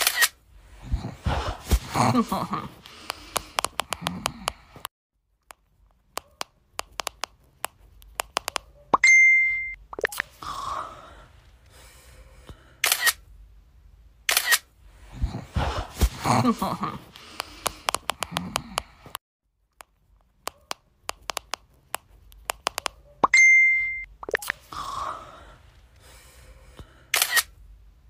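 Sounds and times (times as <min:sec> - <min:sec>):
camera shutter clicks: 0:00.0 - 0:00.4, 0:12.8 - 0:13.2, 0:14.3 - 0:14.7, 0:27.1 - 0:27.5.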